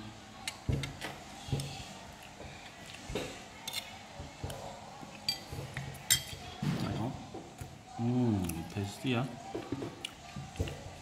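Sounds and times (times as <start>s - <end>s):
metal spoon clinking on plate: 5.2s - 6.4s.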